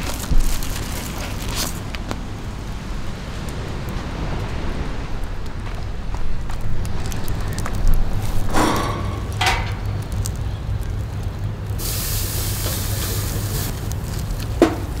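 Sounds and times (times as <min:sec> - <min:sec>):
charcoal fire rumbling and crackling: 0:00.0 - 0:15.0
loud hiss: 0:11.8 - 0:15.0.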